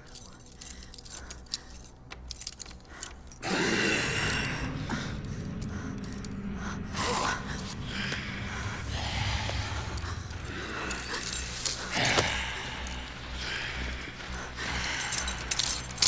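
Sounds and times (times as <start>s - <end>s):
metal clicks on handcuffs: 0.0s - 6.8s, 9.4s - 16.0s
person gasping and groaning: 3.0s - 15.9s.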